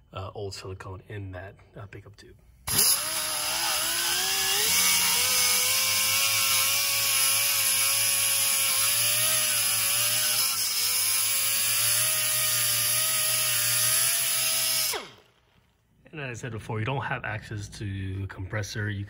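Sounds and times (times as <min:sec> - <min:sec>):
air grinder whine: 0:02.7 - 0:15.7.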